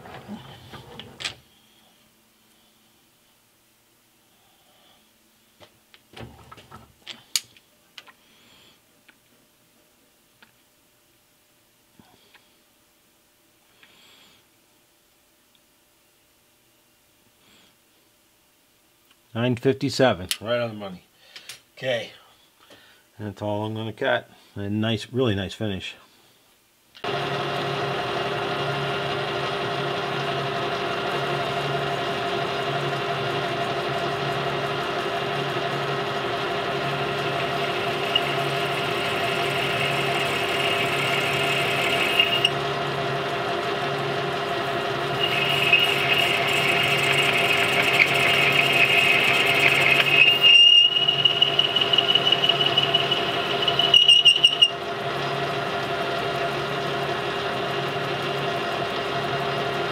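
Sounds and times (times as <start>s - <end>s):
lathe motor and gear hum: 0.0s - 1.4s, 27.1s - 59.9s
high squeal of cutting tool: 37.3s - 42.6s, 45.1s - 54.8s.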